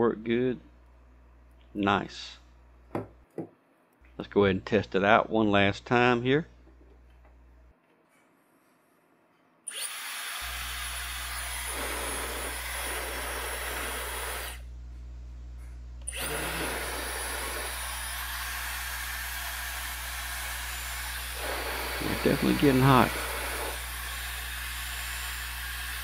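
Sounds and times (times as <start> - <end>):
hair dryer blowing: 9.8 - 14.6, 16.1 - 26.0.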